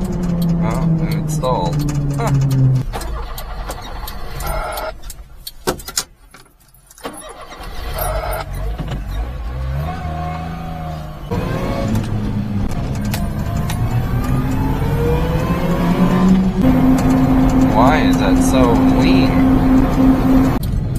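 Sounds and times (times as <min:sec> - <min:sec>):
truck engine starting and revving: 0:00.0 - 0:05.1, 0:07.0 - 0:20.9
clicks: 0:00.0 - 0:06.1, 0:11.9 - 0:14.7.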